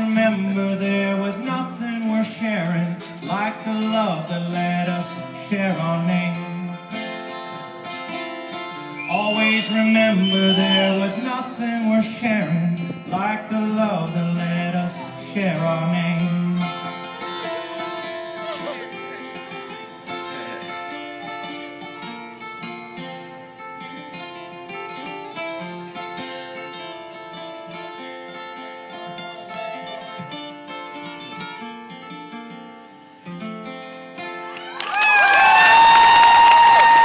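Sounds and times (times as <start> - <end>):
acoustic guitars playing: 0.0 - 34.8
audience cheering and whistling: 8.9 - 11.2, 34.6 - 37.0.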